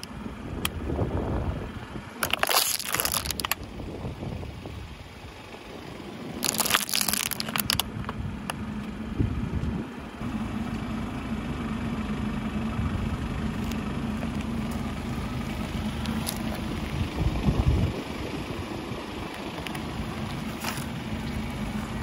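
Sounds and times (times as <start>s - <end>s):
car engine idling: 0.0s - 22.0s
tire crushing something brittle: 2.2s - 3.8s, 6.4s - 8.2s, 13.6s - 16.7s, 19.3s - 21.9s.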